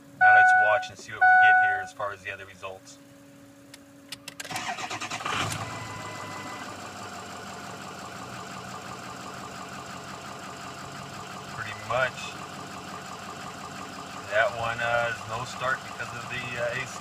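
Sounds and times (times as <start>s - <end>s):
diesel engine idling: 0.0s - 3.6s, 4.5s - 17.0s
diesel engine starter cranking: 4.1s - 7.2s.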